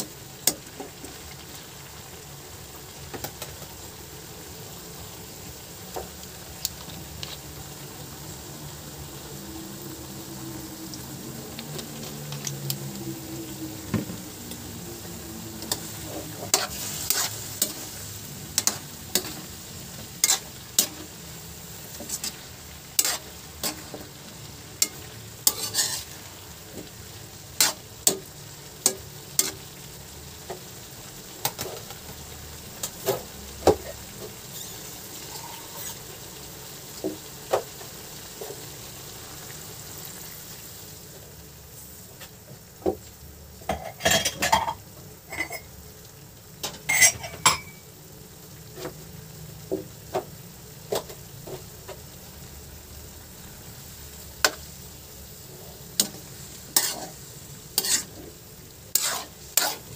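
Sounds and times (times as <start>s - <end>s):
food sizzling in a wok: 0.0s - 59.9s
metal spatula clanking on pan: 18.6s - 19.4s, 20.2s - 21.1s, 24.8s - 26.1s, 46.6s - 47.8s.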